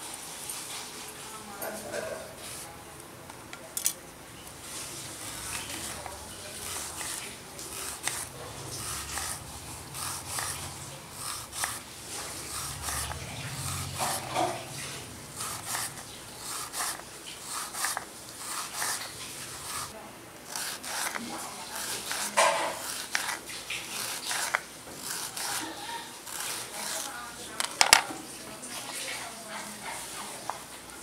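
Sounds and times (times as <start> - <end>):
knife slicing banana: 5.2 - 19.9, 20.5 - 28.0.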